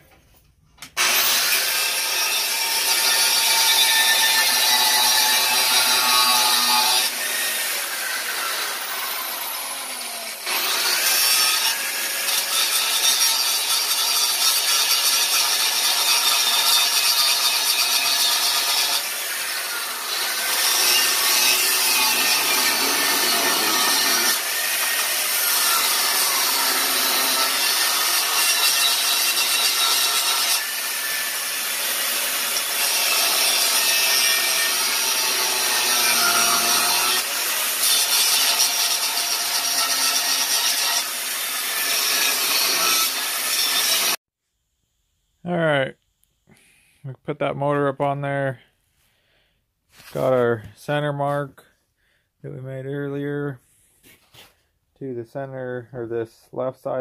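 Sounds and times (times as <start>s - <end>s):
angle grinder cutting steel: 1.0s - 44.2s.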